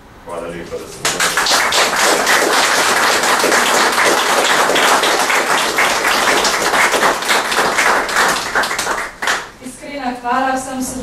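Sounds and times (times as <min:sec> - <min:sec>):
audience applauding: 0:00.8 - 0:09.6.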